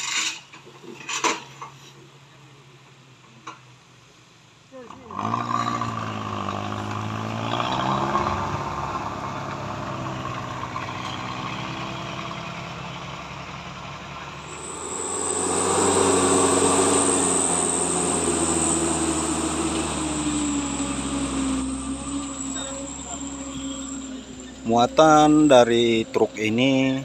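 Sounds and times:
pickup engine passing: 5.1s - 26.6s
truck engine climbing: 5.2s - 27.0s
steady high hiss: 14.4s - 24.4s.

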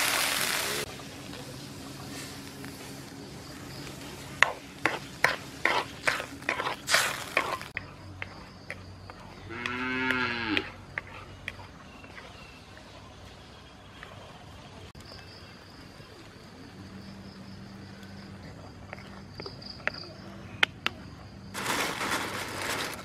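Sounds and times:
cow mooing: 9.5s - 10.7s.

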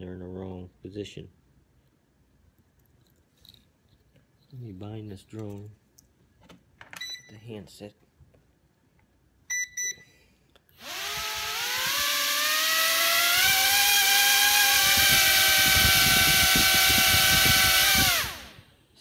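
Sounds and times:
short beeps: 9.5s - 10.2s
drone propellers whining: 10.8s - 18.6s.

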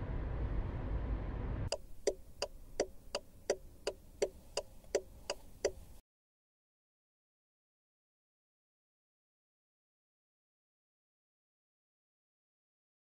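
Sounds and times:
vehicle driving rumble: 0.0s - 6.0s
turn signal ticking: 1.7s - 6.0s.

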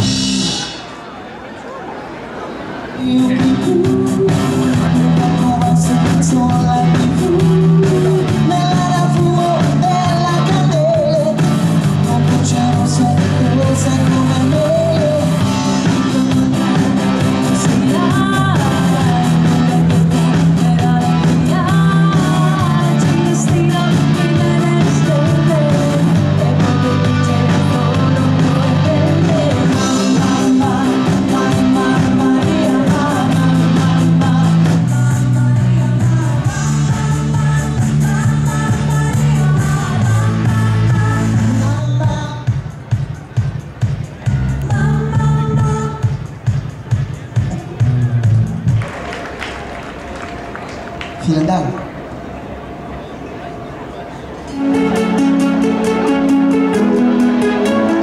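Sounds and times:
bass guitar: 0.0s - 0.8s, 3.2s - 42.6s, 43.8s - 46.0s, 47.4s - 49.0s
drum kit: 0.0s - 0.8s, 3.3s - 49.1s
woman singing: 3.0s - 11.4s, 12.0s - 42.6s, 44.6s - 46.2s.

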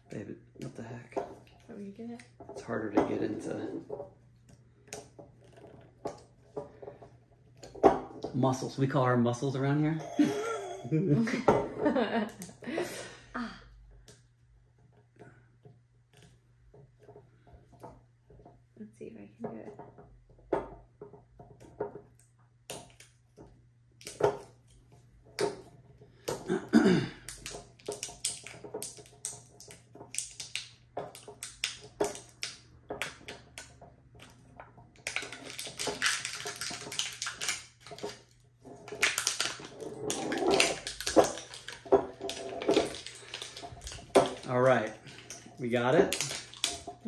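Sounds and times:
nails clicking and scratching seal: 27.2s - 34.4s, 35.0s - 47.0s
seal crinkling and tearing: 35.0s - 47.0s.

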